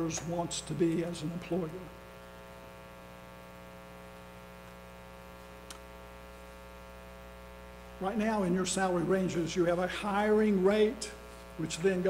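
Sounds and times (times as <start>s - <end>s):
electrical mains hum: 0.0s - 12.0s
faint click: 5.6s - 5.9s.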